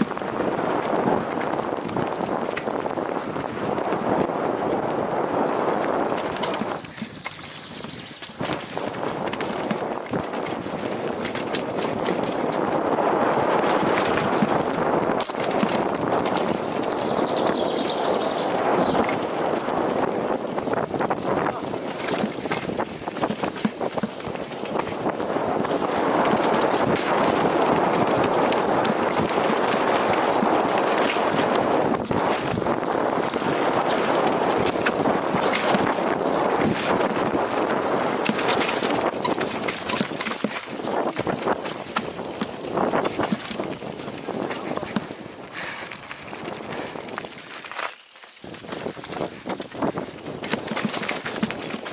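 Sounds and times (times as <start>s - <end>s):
wind on microphone: 0.0s - 47.8s, 48.4s - 51.9s
bike rattling and clacking: 0.0s - 51.9s
tyres rolling over dirt: 0.0s - 51.9s
sharp knocks over roots and rocks: 21.3s - 25.1s, 26.0s - 45.2s.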